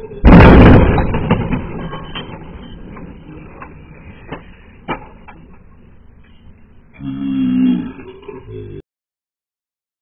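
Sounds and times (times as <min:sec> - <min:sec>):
car crash impact: 0:00.2 - 0:03.7.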